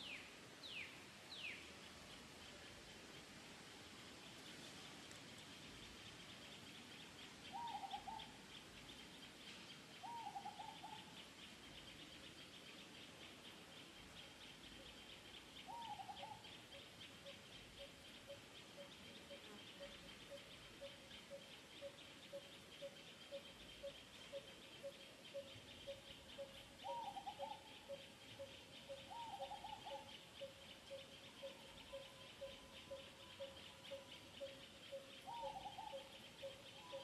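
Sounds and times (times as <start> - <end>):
short wavering bird calls: 6.8 - 8.8, 10.0 - 37.0.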